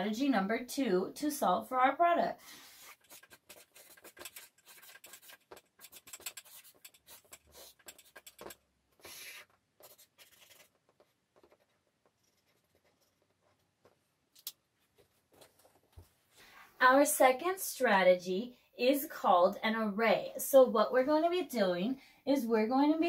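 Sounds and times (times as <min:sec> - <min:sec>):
marker writing on paper: 0:02.6 - 0:14.0.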